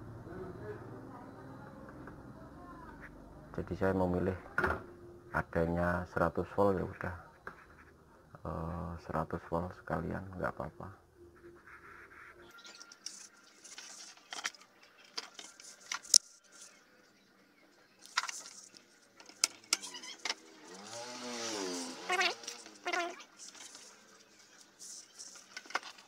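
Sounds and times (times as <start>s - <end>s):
passing motor vehicle: 20.3s - 23.2s.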